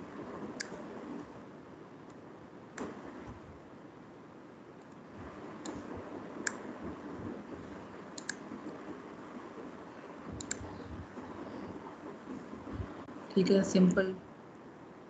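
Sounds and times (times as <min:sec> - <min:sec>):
faint room noise: 0:00.0 - 0:15.0
computer mouse clicking: 0:00.6 - 0:00.8, 0:08.2 - 0:08.4, 0:10.4 - 0:10.8.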